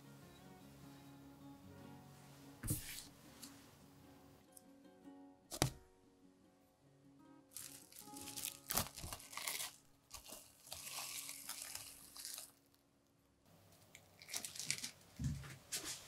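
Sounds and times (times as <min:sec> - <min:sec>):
cling film crinkling: 0:07.5 - 0:12.9, 0:13.8 - 0:15.1.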